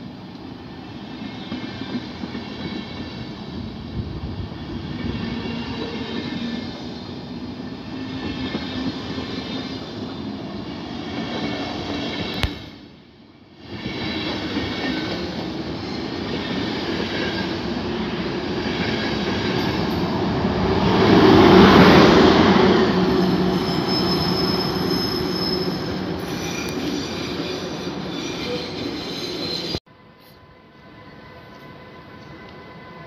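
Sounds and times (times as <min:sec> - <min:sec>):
train passing on rails: 0:00.0 - 0:33.0
high wheel squeal: 0:23.0 - 0:29.8.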